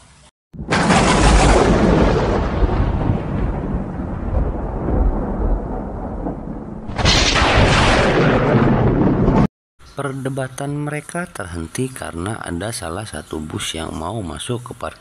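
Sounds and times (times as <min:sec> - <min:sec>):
hissing crash: 0:00.6 - 0:03.0, 0:06.8 - 0:09.4
loud rumbling: 0:00.6 - 0:09.5.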